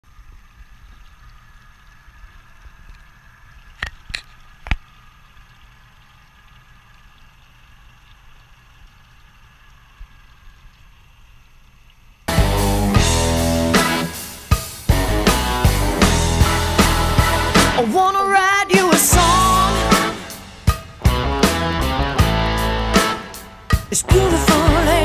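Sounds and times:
outboard motors idling: 0:12.3 - 0:25.0.

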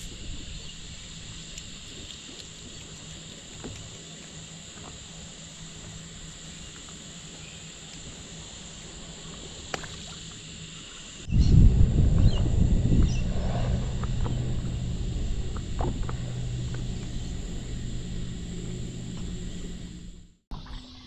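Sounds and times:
insects chirring: 0:00.0 - 0:20.3
loud low rumble: 0:11.3 - 0:20.4.

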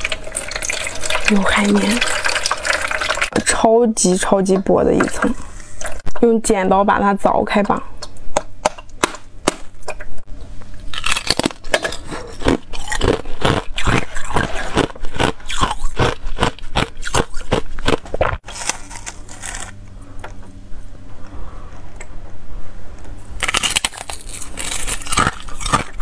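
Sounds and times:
ice cracking and snapping: 0:23.4 - 0:26.0.

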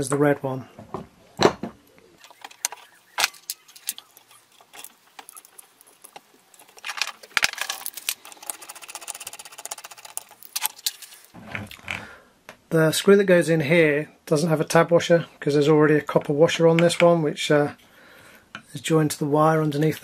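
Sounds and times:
small metal parts clicking: 0:02.2 - 0:11.4.

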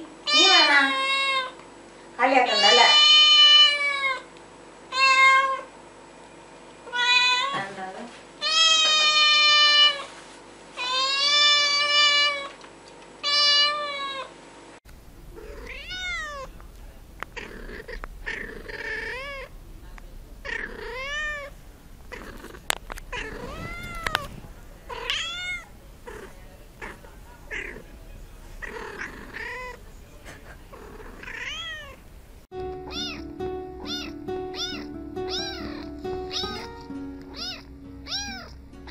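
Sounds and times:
cat meowing: 0:02.5 - 0:04.3, 0:06.9 - 0:07.6, 0:08.4 - 0:10.0, 0:13.2 - 0:14.3, 0:15.4 - 0:16.6, 0:17.3 - 0:27.9, 0:28.6 - 0:29.8, 0:30.7 - 0:32.0, 0:32.8 - 0:38.9
kitten meowing: 0:15.4 - 0:16.5, 0:17.3 - 0:19.6, 0:20.4 - 0:21.5, 0:22.1 - 0:27.9, 0:28.6 - 0:29.8, 0:30.7 - 0:32.0, 0:32.8 - 0:38.9
background music: 0:32.5 - 0:38.9.

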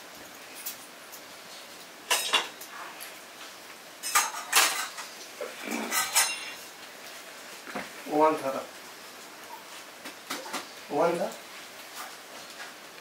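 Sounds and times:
metal utensils and dishes clinking: 0:02.1 - 0:03.1, 0:04.0 - 0:06.7.

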